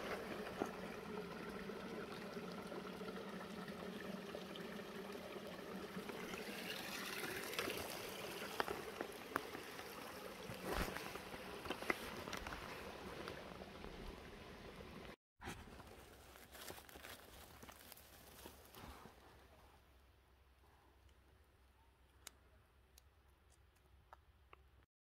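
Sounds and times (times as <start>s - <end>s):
trickling running water: 0.0s - 15.2s.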